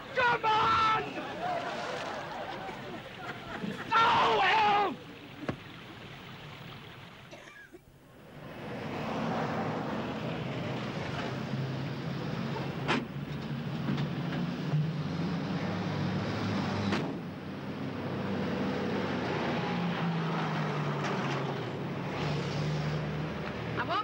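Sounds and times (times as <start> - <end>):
street traffic: 0.0 - 24.0.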